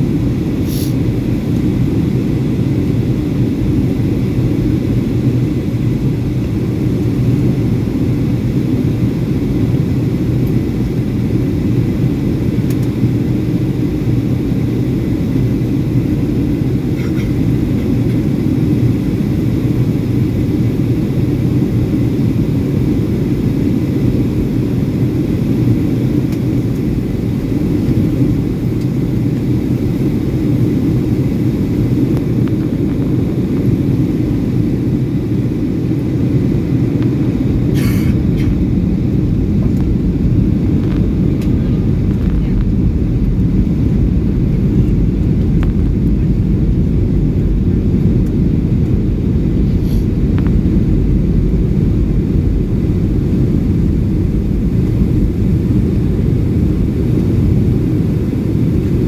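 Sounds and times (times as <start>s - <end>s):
jet engines rumbling: 0.0s - 59.0s
airflow past fuselage: 24.3s - 59.0s.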